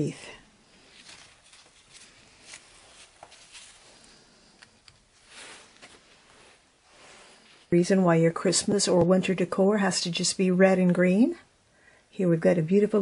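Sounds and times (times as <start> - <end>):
faint leaf rustling: 0.6 - 7.8.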